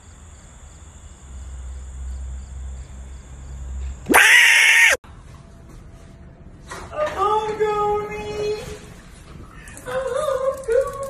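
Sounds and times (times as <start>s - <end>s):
loud harsh scream: 4.1s - 5.0s.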